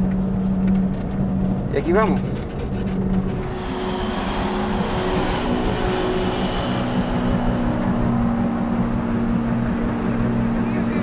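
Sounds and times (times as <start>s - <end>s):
truck diesel engine droning: 3.2s - 11.0s.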